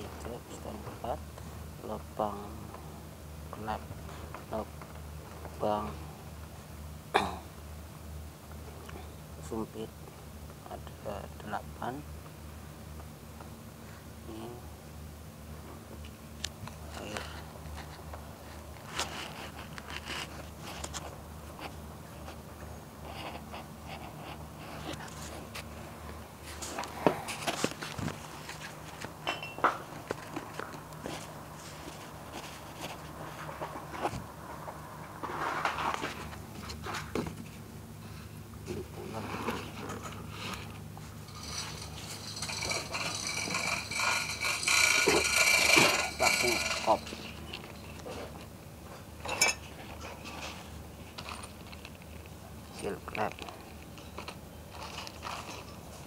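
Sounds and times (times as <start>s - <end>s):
low steady hum: 0.0s - 56.0s
plastic wrap rustling and scraping: 17.2s - 22.4s, 38.7s - 48.4s.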